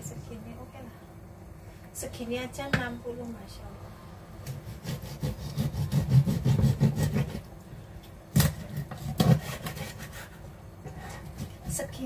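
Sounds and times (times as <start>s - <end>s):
knife sawing through fish: 4.6s - 7.4s, 8.4s - 11.7s.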